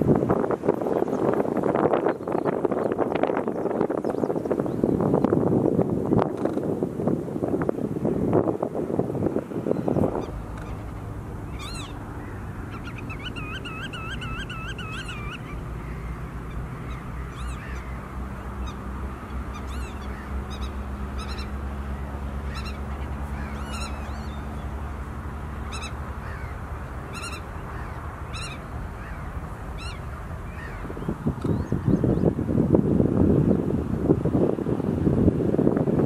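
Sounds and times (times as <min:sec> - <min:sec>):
low wind rumble: 0:00.0 - 0:36.0
small birds chirping: 0:00.7 - 0:05.4, 0:09.6 - 0:24.9, 0:25.6 - 0:32.4
godwit calling: 0:09.8 - 0:24.8, 0:25.6 - 0:32.0.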